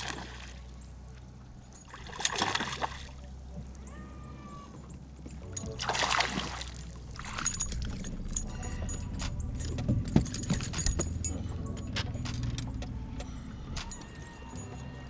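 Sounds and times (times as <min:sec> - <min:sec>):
water splashing: 0:00.0 - 0:03.8, 0:04.8 - 0:11.0
low steady hum: 0:00.0 - 0:15.0.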